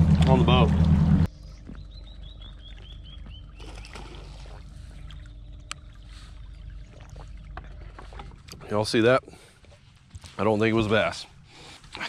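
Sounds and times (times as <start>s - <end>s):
low boat motor hum: 0.0s - 12.0s.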